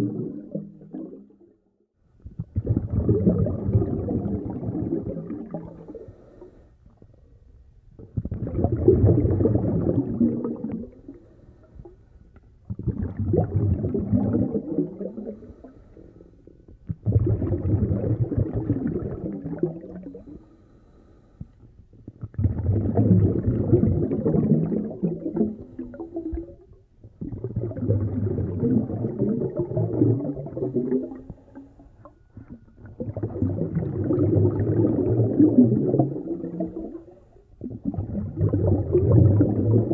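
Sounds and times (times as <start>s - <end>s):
muffled breathing through a snorkel: 5.7s - 7.6s, 11.0s - 12.3s, 15.2s - 16.7s, 20.0s - 21.8s.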